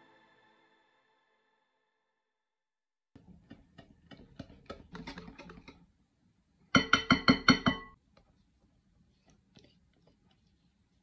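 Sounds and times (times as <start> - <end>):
whisk stirring chocolate: 3.2 - 5.9, 8.2 - 11.0.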